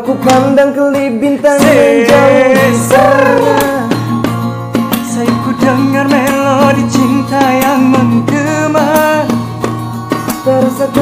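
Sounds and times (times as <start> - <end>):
person singing: 0.0 - 4.2, 4.9 - 9.4, 10.2 - 11.0.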